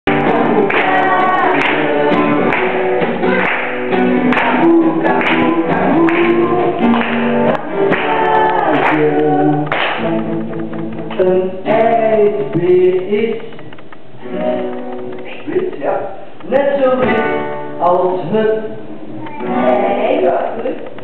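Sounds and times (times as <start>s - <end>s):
person singing: 0.1s - 10.0s, 11.0s - 15.4s, 16.8s - 20.3s
strummed acoustic guitar: 0.1s - 21.0s.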